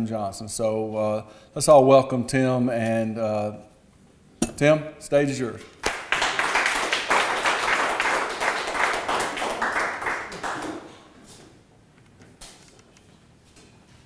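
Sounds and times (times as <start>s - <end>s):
audience applauding: 5.8s - 11.1s.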